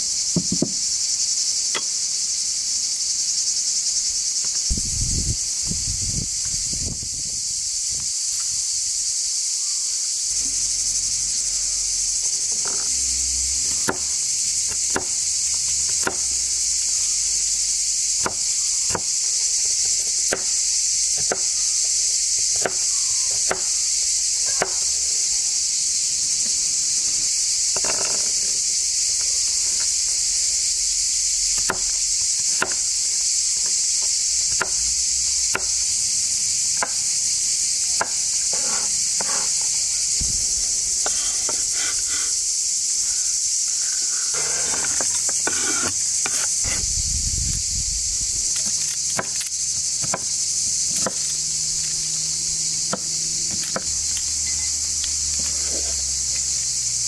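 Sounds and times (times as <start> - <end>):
insects chorus: 0.0 - 57.0.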